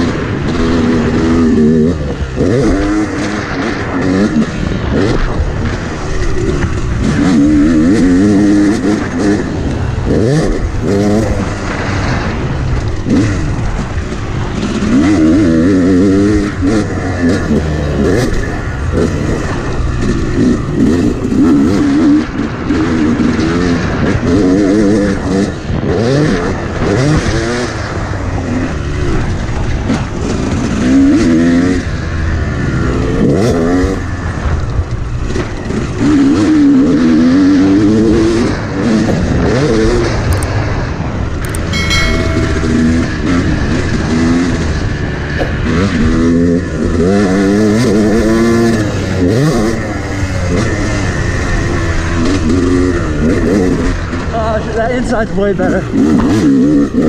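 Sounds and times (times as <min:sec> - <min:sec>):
dirt bike engine revving: 0:00.0 - 0:24.0.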